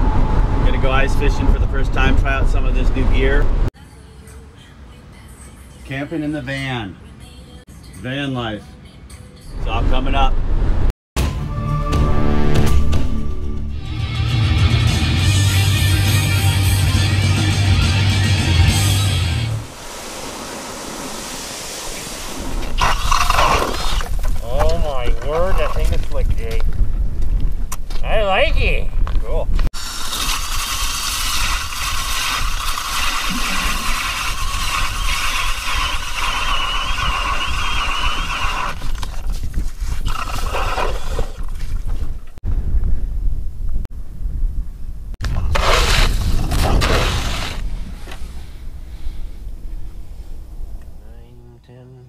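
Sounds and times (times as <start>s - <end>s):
rush of noise: 18.7s - 24.2s
steady hiss: 19.6s - 23.3s.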